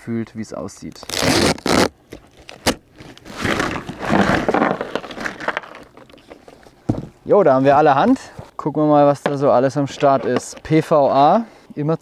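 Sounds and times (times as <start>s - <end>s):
cardboard and plastic rustling: 0.9s - 8.6s
cardboard tearing: 1.0s - 6.1s.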